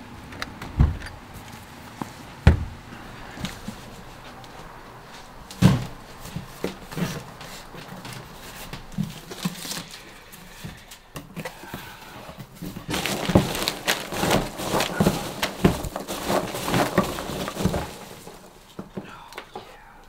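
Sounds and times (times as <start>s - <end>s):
hands rummaging through packing peanuts: 2.7s - 19.7s
cardboard box torn open: 12.8s - 18.4s.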